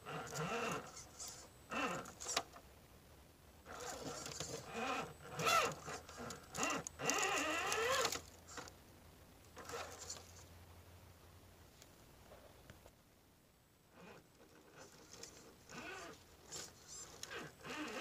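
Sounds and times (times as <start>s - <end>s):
rc car motor whining: 0.0s - 2.5s, 3.7s - 8.7s, 9.6s - 10.4s, 13.9s - 18.0s.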